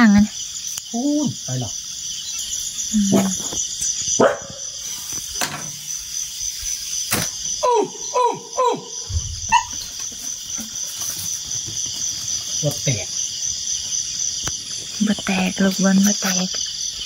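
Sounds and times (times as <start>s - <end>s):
crickets chirping: 0.0s - 17.0s
dog barking: 4.2s - 4.7s, 9.5s - 9.8s.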